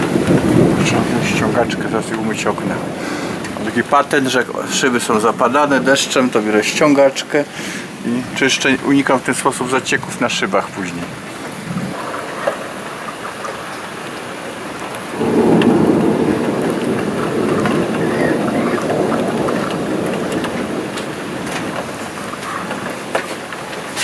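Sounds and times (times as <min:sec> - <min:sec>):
thunder rumble: 0:00.0 - 0:06.1, 0:14.2 - 0:23.9
steady rain: 0:00.0 - 0:24.0.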